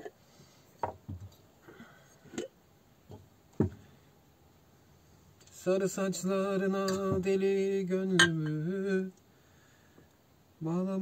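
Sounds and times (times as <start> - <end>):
glass jar and tableware clinking: 8.2 - 8.6.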